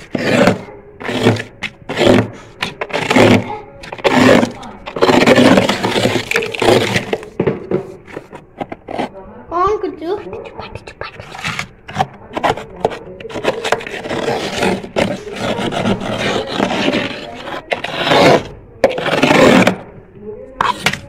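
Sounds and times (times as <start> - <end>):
frost being scraped by hand: 0.0 - 7.3, 10.7 - 19.8.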